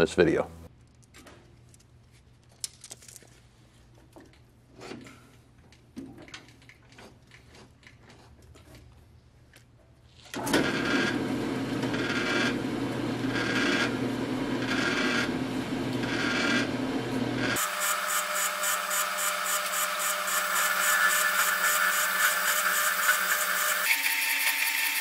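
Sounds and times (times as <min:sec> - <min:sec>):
band saw cutting steel tube: 0:14.6 - 0:15.3, 0:17.4 - 0:25.0.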